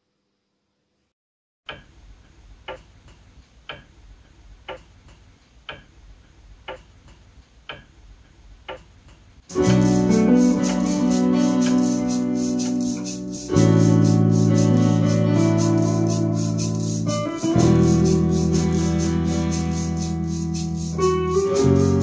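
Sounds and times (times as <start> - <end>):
clock ticking: 1.7 - 11.0
instrumental music with keyboard chords: 9.5 - 22.0.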